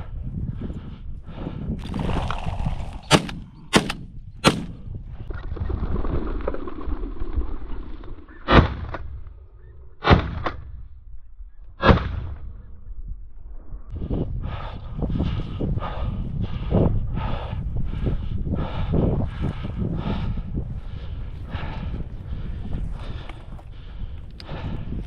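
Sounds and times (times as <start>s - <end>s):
sharp cracks: 3.0s - 4.8s
shotgun shots: 3.1s - 4.8s.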